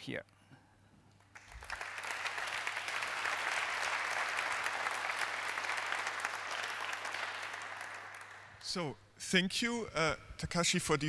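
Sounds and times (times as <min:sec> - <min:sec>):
audience applauding: 0:01.2 - 0:08.7.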